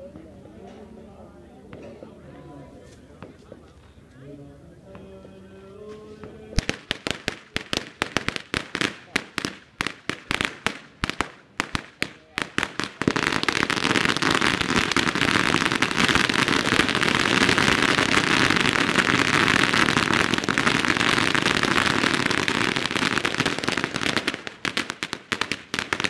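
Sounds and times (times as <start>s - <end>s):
firecrackers crackling: 6.2s - 26.0s.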